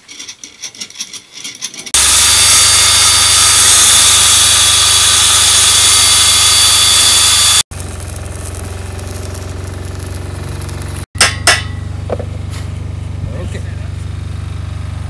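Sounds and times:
power tool cutting wood: 2.0s - 7.7s.

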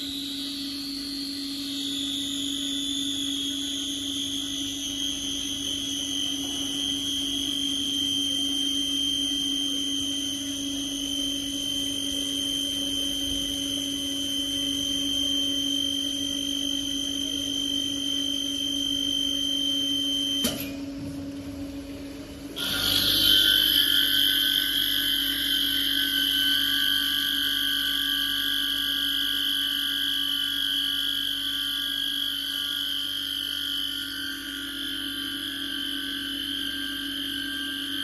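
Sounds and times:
drill motors humming: 22.6s - 26.8s.

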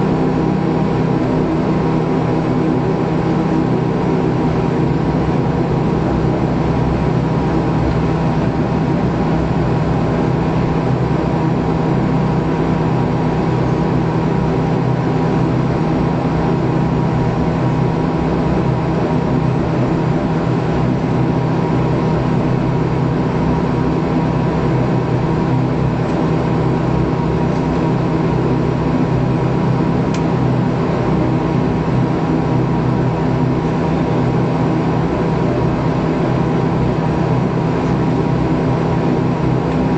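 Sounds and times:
turboprop engine drone: 0.0s - 39.9s.

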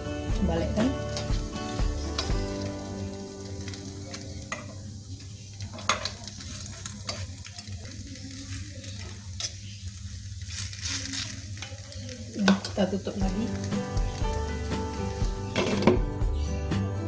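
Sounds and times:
faint sizzle: 0.0s - 16.9s
metal utensil clicking on pan: 1.1s - 1.4s, 2.0s - 2.9s, 3.5s - 4.8s, 5.6s - 7.6s, 11.1s - 13.4s.

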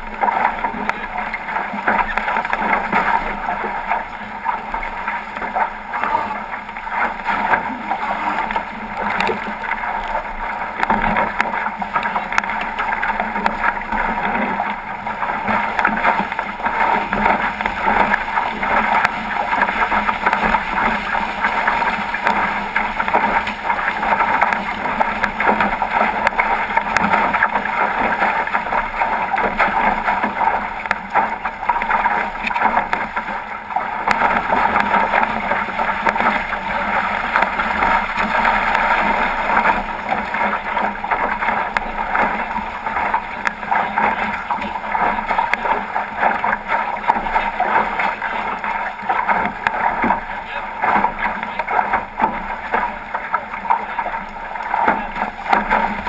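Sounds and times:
water rushing along a hull: 0.0s - 56.0s.

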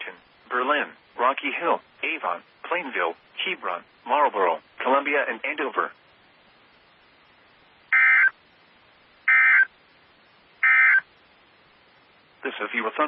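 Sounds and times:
digital data tone bursts: 7.9s - 8.4s, 9.3s - 9.7s, 10.6s - 11.1s.

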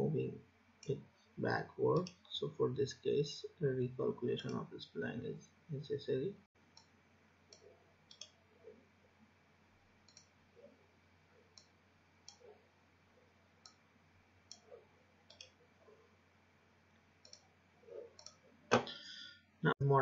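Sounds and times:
computer mouse clicks: 7.5s - 8.4s, 10.0s - 10.4s, 11.5s - 12.5s, 14.5s - 15.6s, 17.2s - 18.9s.

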